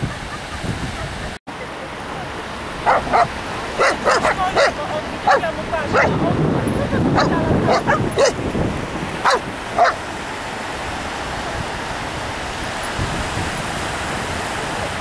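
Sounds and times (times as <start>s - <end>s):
surf rushing: 0.0s - 15.0s
dog barking and yipping: 2.8s - 6.2s, 7.2s - 8.4s, 9.2s - 10.0s.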